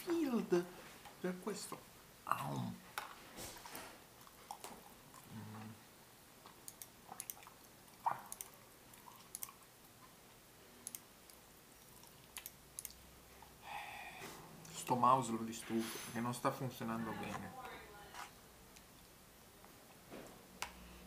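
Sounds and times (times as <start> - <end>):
person chewing food: 4.1 - 5.8, 6.4 - 10.2, 10.9 - 13.6.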